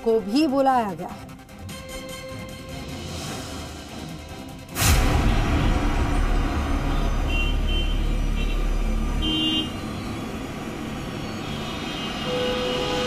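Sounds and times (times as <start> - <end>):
urban traffic noise: 0.0 - 13.0
deep rumble: 4.7 - 9.1
car horn toots: 6.9 - 9.9, 12.2 - 13.0.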